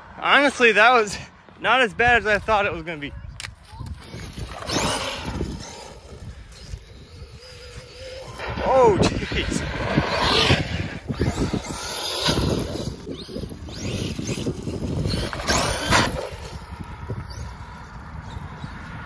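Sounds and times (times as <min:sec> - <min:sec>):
toy truck electric motor whining: 0:03.7 - 0:08.9, 0:09.7 - 0:18.7.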